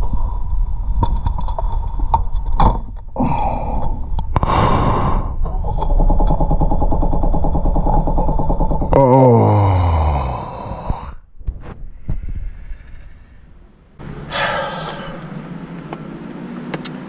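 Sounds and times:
engine starter cranking: 0:05.5 - 0:09.0.

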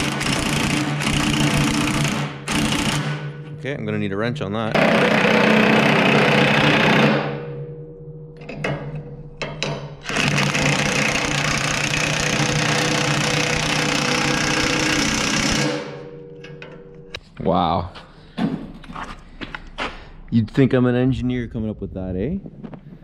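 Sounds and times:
impact wrench hammering: 0:00.0 - 0:03.6, 0:04.7 - 0:17.2.

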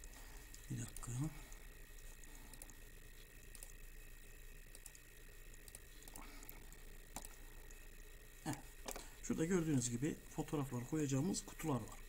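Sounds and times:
steady hum: 0:00.0 - 0:12.0
computer mouse clicks: 0:02.5 - 0:03.8, 0:04.7 - 0:07.8.

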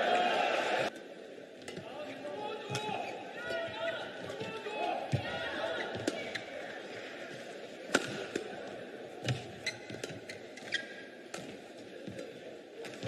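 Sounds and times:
shoes squeaking on court: 0:09.2 - 0:11.5.

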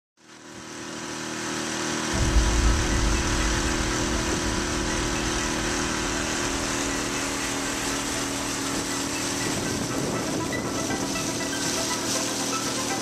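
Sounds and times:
outboard motor running: 0:00.5 - 0:13.0
uneven low rumble: 0:02.2 - 0:12.3
water rushing in wake: 0:02.2 - 0:13.0.

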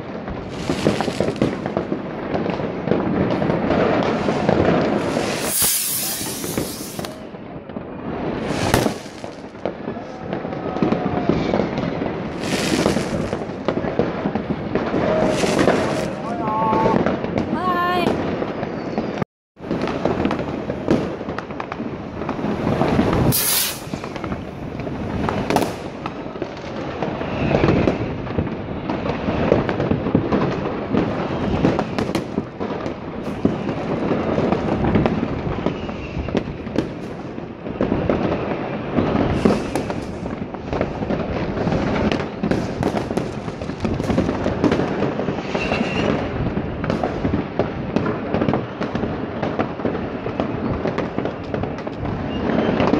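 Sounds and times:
fireworks bangs and crackling: 0:00.0 - 0:52.9
firework whistle: 0:04.0 - 0:07.3, 0:08.3 - 0:14.0, 0:14.8 - 0:17.0, 0:18.5 - 0:19.2, 0:22.2 - 0:26.3, 0:26.9 - 0:28.3, 0:34.5 - 0:37.0, 0:38.2 - 0:40.3, 0:43.9 - 0:47.0, 0:50.1 - 0:52.9.

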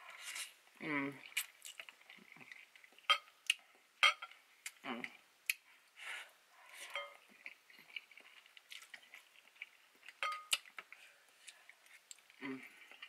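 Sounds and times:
wet chewing of noodles: 0:00.1 - 0:03.9, 0:06.6 - 0:13.0.

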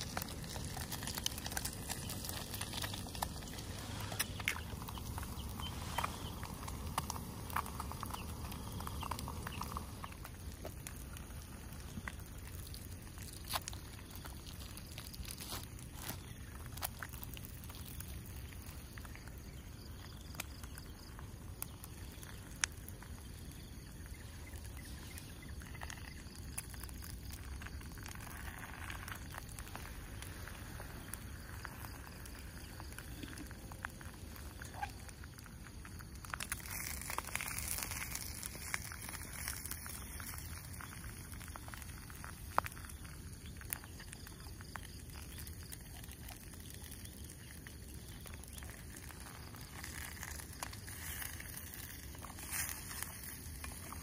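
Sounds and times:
faint sizzling: 0:00.0 - 0:54.0
gas stove burning hiss: 0:00.0 - 0:54.0.

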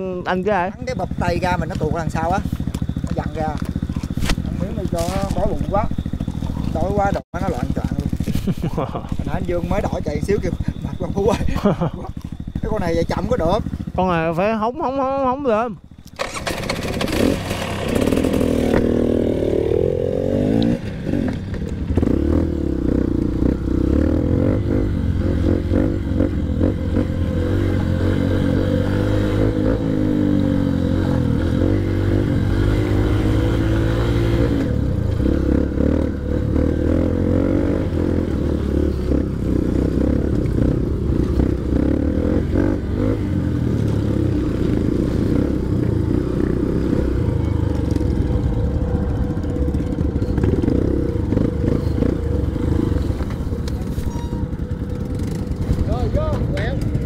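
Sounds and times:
dirt bike engine revving: 0:00.0 - 0:14.6, 0:16.1 - 0:57.0
bike clattering over rough trail: 0:01.1 - 0:14.0, 0:15.8 - 0:19.1.

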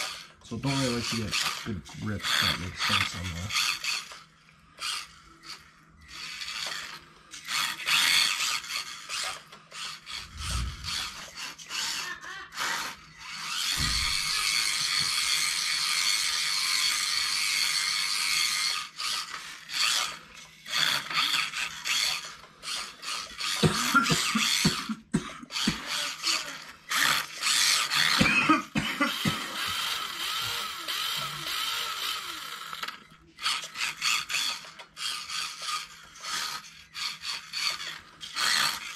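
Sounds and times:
toy car electric motor whining: 0:00.0 - 0:38.9
low thumps and sharp knocks: 0:13.7 - 0:14.5.

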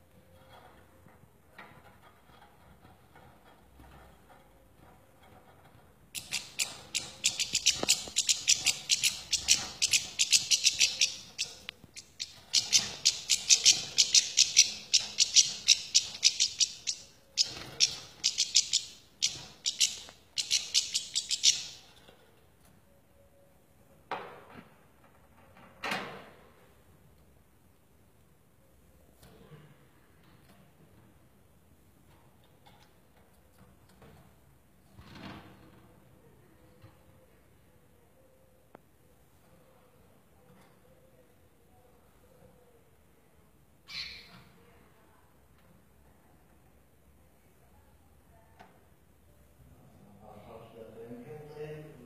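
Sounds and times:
bird twittering song: 0:06.2 - 0:21.8.

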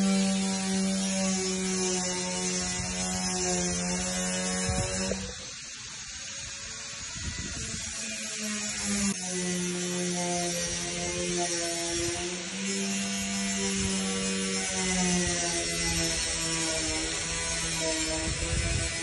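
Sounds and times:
steady mechanical hum: 0:00.0 - 0:19.0
high hiss: 0:01.8 - 0:09.1.

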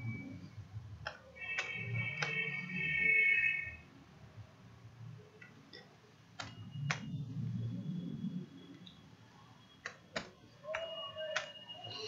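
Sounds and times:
computer keyboard or mouse clicks: 0:01.0 - 0:02.4, 0:05.4 - 0:07.1, 0:09.8 - 0:11.6.

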